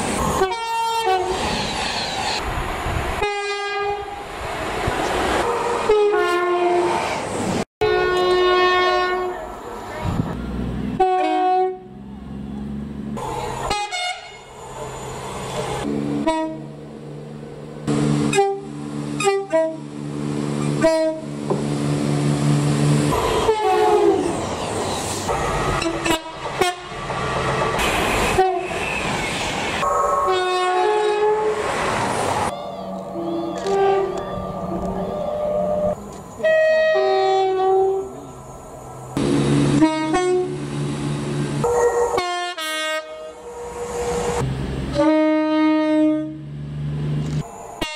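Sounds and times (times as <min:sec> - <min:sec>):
passing trains: 0:00.0 - 0:47.9
train horn blasts: 0:03.2 - 0:04.2, 0:05.6 - 0:07.0, 0:07.8 - 0:09.4, 0:11.0 - 0:12.0, 0:13.7 - 0:14.5, 0:15.8 - 0:16.7, 0:18.3 - 0:19.9, 0:20.8 - 0:21.3, 0:23.4 - 0:24.2, 0:25.8 - 0:27.0, 0:28.3 - 0:28.8, 0:30.2 - 0:31.6, 0:33.2 - 0:34.2, 0:35.3 - 0:38.2, 0:39.2 - 0:40.6, 0:41.6 - 0:44.2, 0:44.9 - 0:46.4
long low train horn note: 0:05.7 - 0:07.0, 0:07.8 - 0:09.4, 0:11.0 - 0:12.0, 0:15.8 - 0:16.7, 0:17.9 - 0:19.9, 0:20.7 - 0:21.4, 0:23.4 - 0:24.3, 0:25.8 - 0:26.9, 0:29.8 - 0:31.6, 0:32.6 - 0:38.2, 0:39.2 - 0:40.7, 0:41.6 - 0:46.5.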